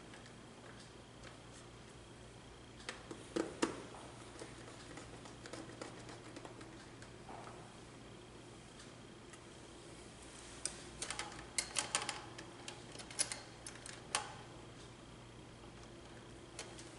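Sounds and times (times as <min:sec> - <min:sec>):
clicks and taps of wiring: 0:10.6 - 0:14.5, 0:15.8 - 0:16.9.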